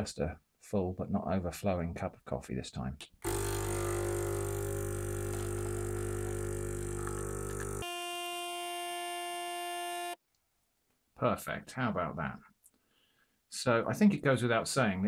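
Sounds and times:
espresso machine pump buzzing: 3.2 - 10.2.

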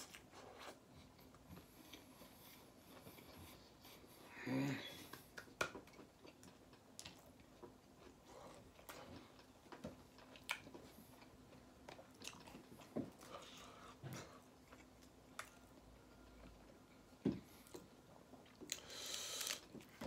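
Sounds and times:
mouth chewing food: 4.9 - 20.0.

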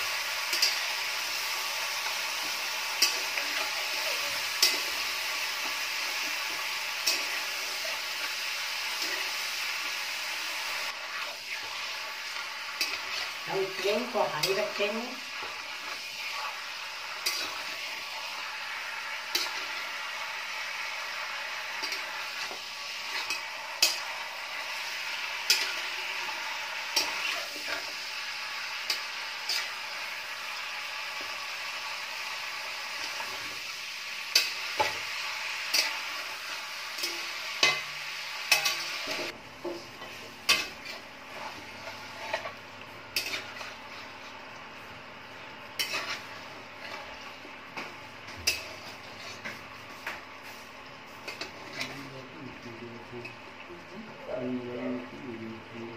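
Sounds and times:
chicken sizzling in hot oil: 0.0 - 55.9
metal spatula scraping a pan: 17.2 - 18.2, 28.8 - 29.8, 38.5 - 42.6, 43.2 - 44.1, 45.8 - 47.2, 48.3 - 49.6, 51.2 - 52.1.

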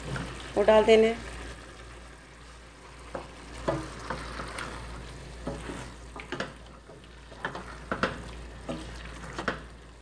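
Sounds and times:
faint frying sizzle: 0.0 - 10.0
wooden spoon scraping a pot: 3.1 - 9.7.

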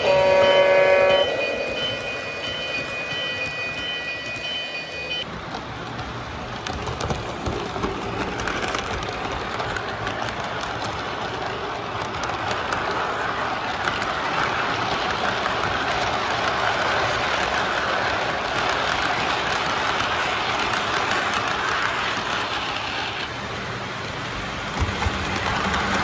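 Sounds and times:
train bell ringing: 0.0 - 5.3
model train wheels on rail: 0.0 - 26.0.

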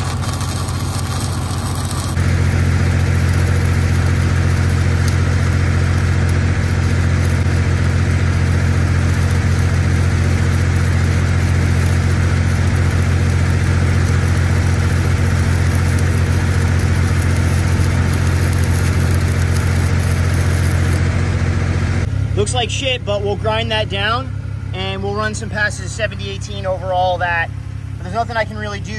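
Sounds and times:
welding arc crackling and hissing: 0.0 - 22.8
welding machine engine droning: 0.0 - 28.9.

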